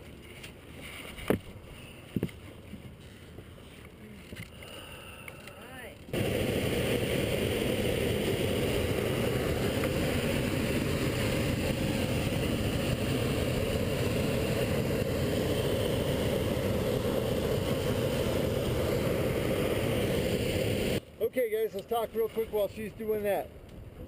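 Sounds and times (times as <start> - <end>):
propane burner firing: 4.4 - 22.8.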